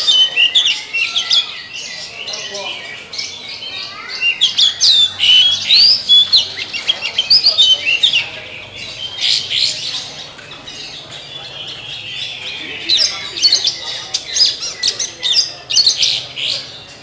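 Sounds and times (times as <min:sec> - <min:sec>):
bird singing whistled notes: 0:04.2 - 0:08.3.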